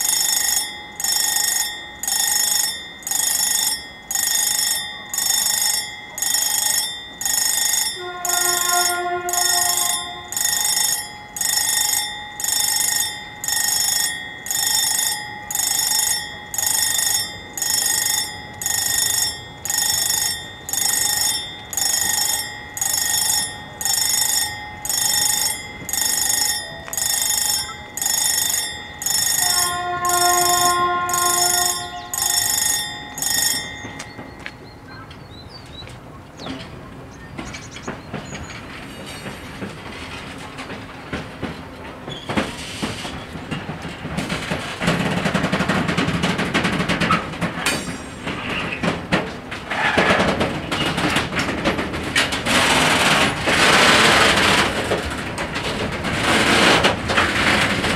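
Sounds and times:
level crossing bells ringing: 0.0s - 35.9s, 50.3s - 57.9s.

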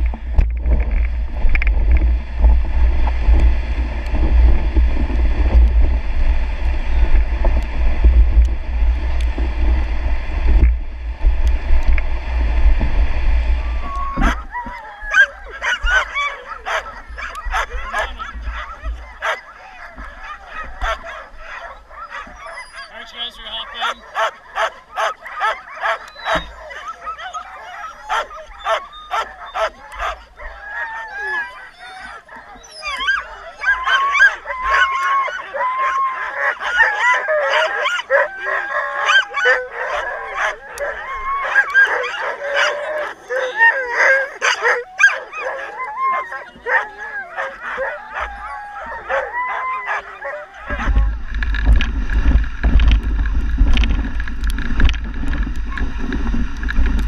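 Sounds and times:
low rumble: 0.0s - 14.6s, 50.6s - 57.0s
sled dogs barking and yelping: 13.6s - 57.0s.

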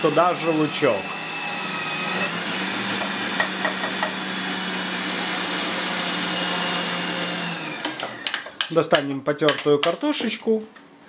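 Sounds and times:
food processor motor whining: 0.0s - 8.7s.

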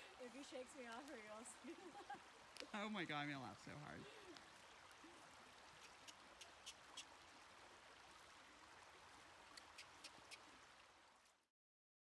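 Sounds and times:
creek trickling: 0.0s - 11.5s
sharp ticks: 9.5s - 10.4s.

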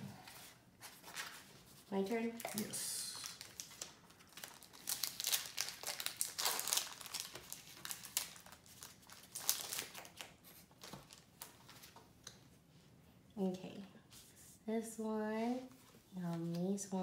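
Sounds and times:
foil wrapper crinkling and tearing: 2.4s - 11.5s.

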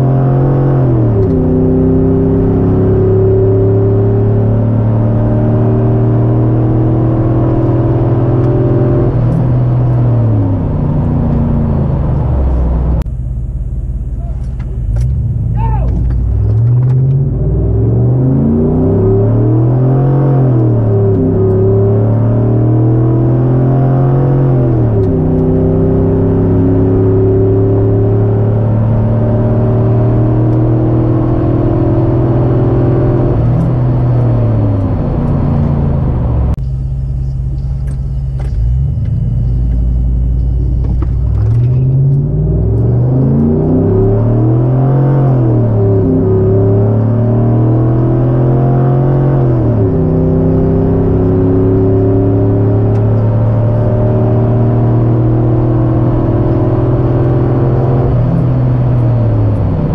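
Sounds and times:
pickup truck engine revving: 37.6s - 59.9s.

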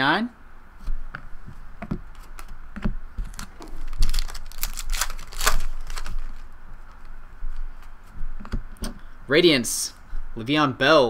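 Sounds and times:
foil wrapper tearing and crinkling: 3.2s - 7.0s.

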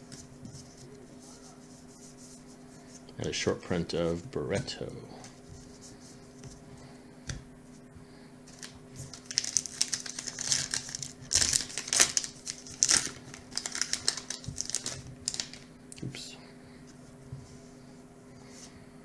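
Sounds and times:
card pack wrapper crinkling and tearing: 8.5s - 15.7s.

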